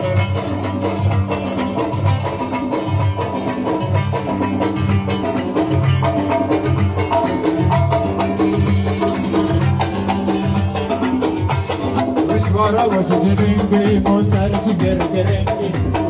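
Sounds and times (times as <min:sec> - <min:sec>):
hand drum rhythm: 0:00.0 - 0:16.0
pulsing bass line: 0:00.0 - 0:16.0
fast dance music: 0:05.0 - 0:16.0.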